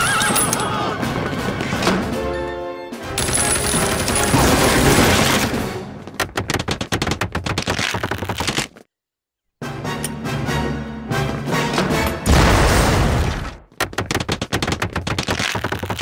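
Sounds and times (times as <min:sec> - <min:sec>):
music: 0:00.0 - 0:06.2, 0:09.6 - 0:12.4
wooden barn crashing apart: 0:12.3 - 0:13.6.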